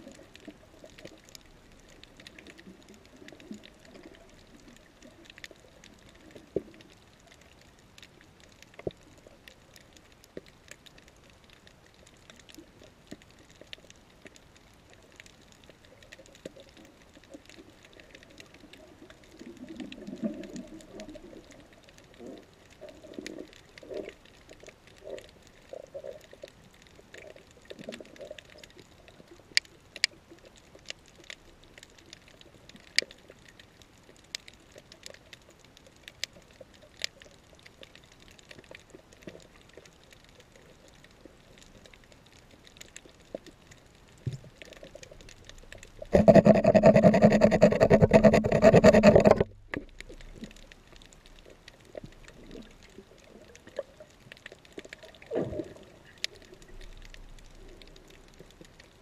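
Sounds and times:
sharp underwater clicks: 26.3s - 35.5s, 40.9s - 59.0s.

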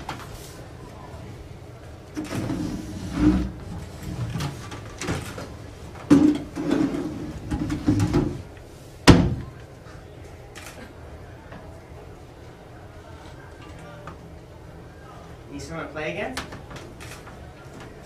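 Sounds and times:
wooden chairs scraping and knocking: 2.2s - 8.5s.

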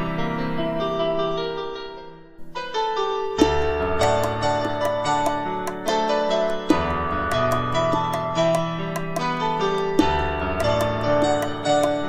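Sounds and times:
keyboard melody: 3.2s - 12.0s
light ticking beat: 3.4s - 12.0s.

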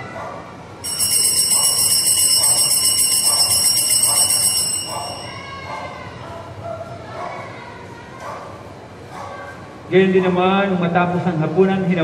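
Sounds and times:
small bells jingling: 0.8s - 6.0s.

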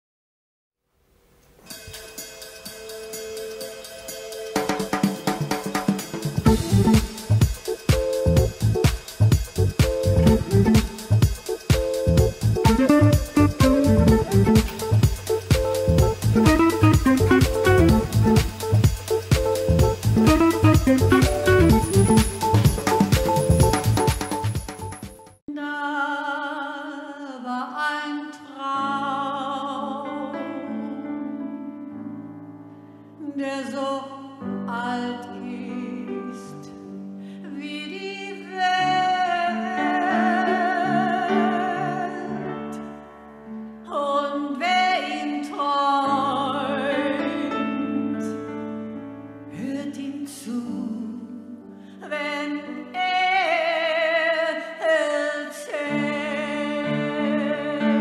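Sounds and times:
piano chords: 1.8s - 25.4s
woman singing operatically: 25.5s - 30.5s, 33.2s - 36.7s, 37.5s - 42.5s, 43.9s - 48.4s, 49.6s - 58.0s.

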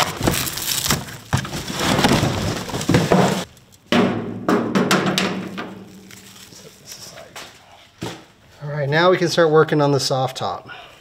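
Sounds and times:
cardboard and plastic wrap crinkling: 0.0s - 3.8s, 5.8s - 7.7s.

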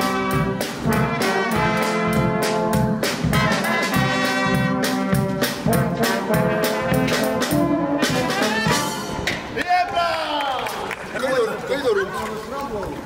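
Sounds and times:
brass band playing upbeat tune: 0.0s - 9.6s.

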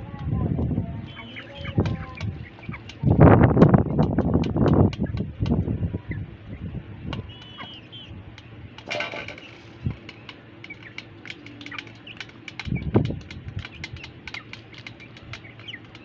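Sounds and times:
chicks chirping: 1.0s - 16.0s
beaks clicking on metal bowl: 1.1s - 3.3s, 7.2s - 16.0s.

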